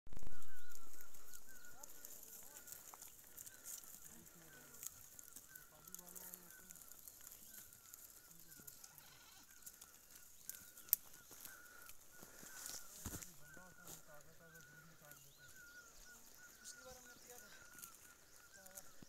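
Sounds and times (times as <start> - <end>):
goats bleating: 1.1 - 10.6.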